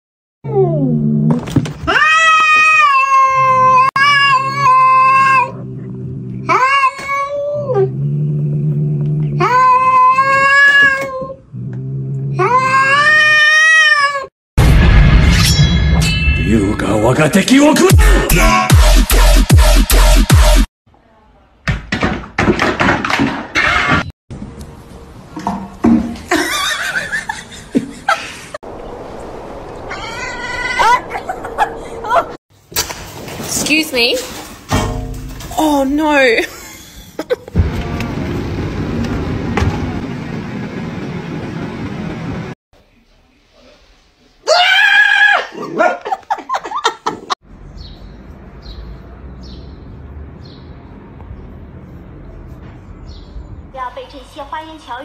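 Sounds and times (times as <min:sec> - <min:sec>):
cat yowling: 0:01.9 - 0:05.6, 0:09.4 - 0:11.3
fake scream: 0:44.4 - 0:45.8.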